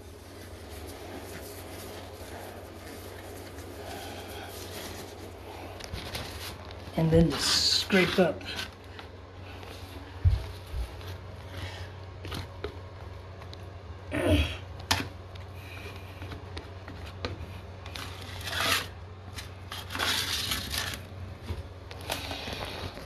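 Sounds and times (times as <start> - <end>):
scraping residue off tile: 17.9 - 21.0.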